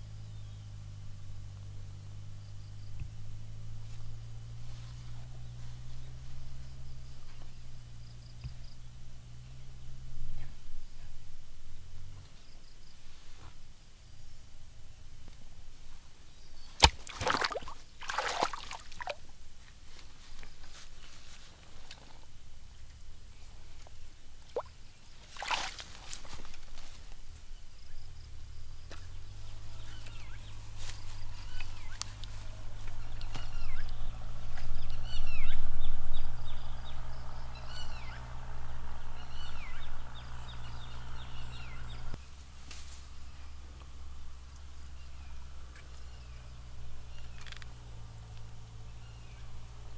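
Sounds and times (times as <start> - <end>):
knife slapping into water: 16.8 - 19.2, 25.3 - 26.2
water splashing and sloshing: 16.8 - 19.3, 24.4 - 26.7
birds whistling and chipping: 27.9 - 42.3.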